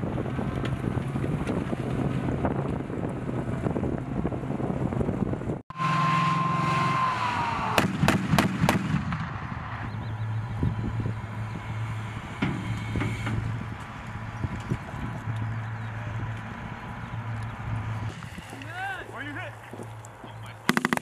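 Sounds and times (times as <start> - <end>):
vehicle engine running: 0.0 - 21.0
cannon firing burst: 7.7 - 9.8, 20.7 - 21.0.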